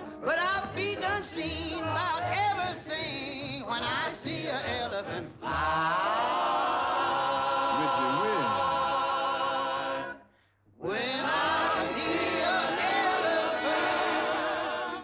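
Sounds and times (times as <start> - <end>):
male choir holding chord: 3.8 - 10.2.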